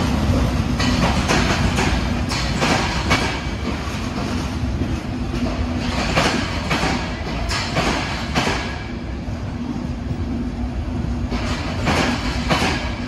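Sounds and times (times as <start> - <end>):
train coaches rumbling: 0.0 - 13.0
wheels clacking over rail joints: 0.4 - 9.0, 11.3 - 13.0.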